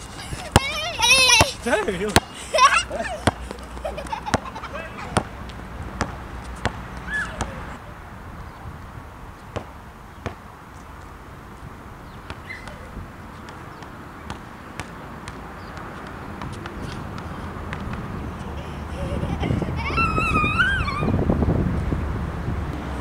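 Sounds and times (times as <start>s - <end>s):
basketball bouncing on asphalt: 0.3s - 2.3s, 3.1s - 7.6s, 9.4s - 11.1s, 12.1s - 18.3s
wind rumble on microphone: 16.4s - 23.0s.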